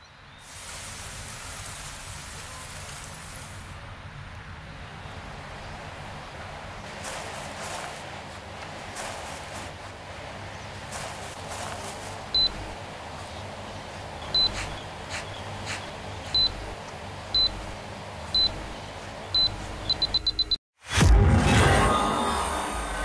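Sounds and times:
high electronic beeps: 0:12.4 - 0:12.8, 0:14.3 - 0:14.7, 0:16.3 - 0:20.6.

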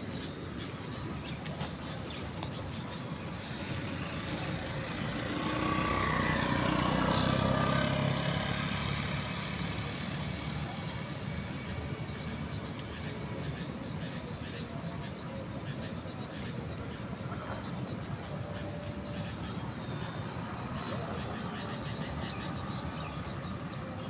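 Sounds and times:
steady traffic noise: 0:00.0 - 0:24.0
vehicle driving past: 0:04.1 - 0:11.7.

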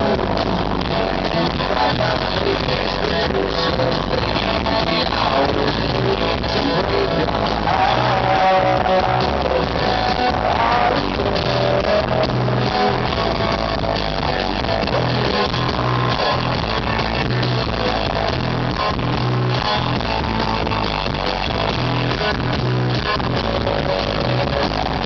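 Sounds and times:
person singing: 0:00.0 - 0:17.4
live rock band playing: 0:00.0 - 0:25.0.

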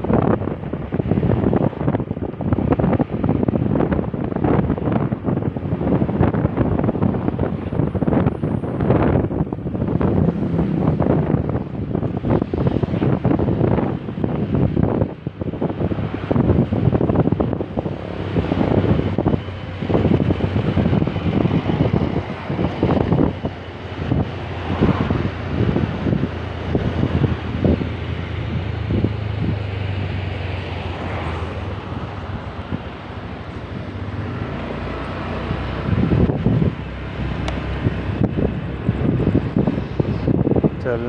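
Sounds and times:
scooter engine humming: 0:00.0 - 0:40.8
wind buffeting microphone: 0:00.0 - 0:41.0.

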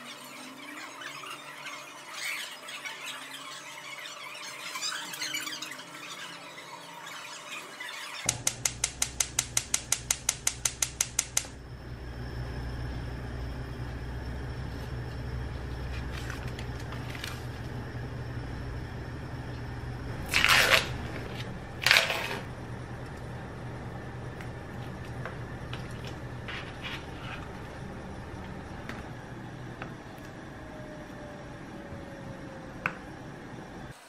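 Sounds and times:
low steady hum: 0:08.3 - 0:33.9.

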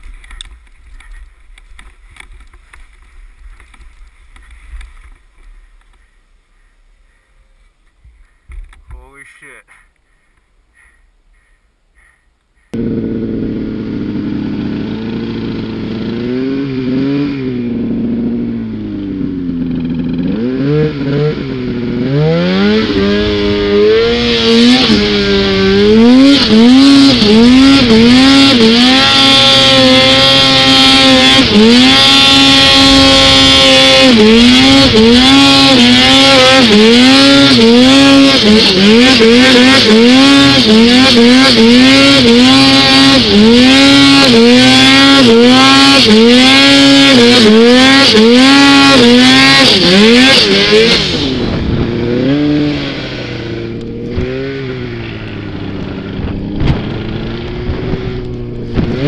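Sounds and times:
snowmobile engine revving: 0:12.1 - 0:59.0.

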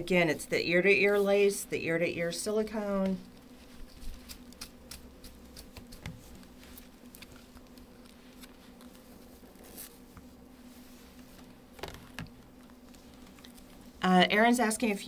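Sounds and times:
low steady hum: 0:00.0 - 0:15.0
hands rustling a wig: 0:03.1 - 0:04.7, 0:05.5 - 0:14.0.

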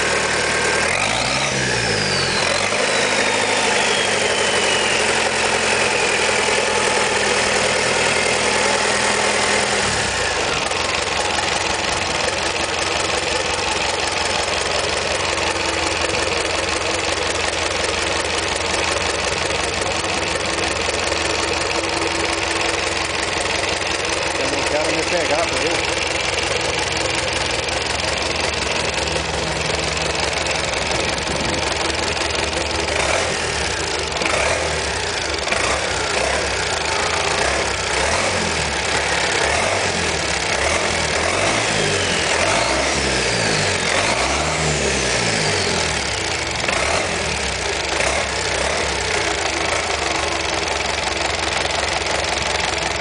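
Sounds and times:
diesel engine idling and revving: 0:00.0 - 0:53.0.

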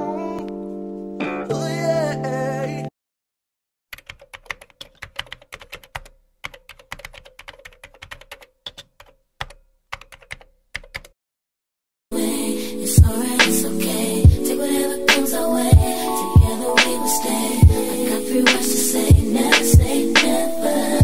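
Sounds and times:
typing on computer keyboard: 0:03.9 - 0:11.2.

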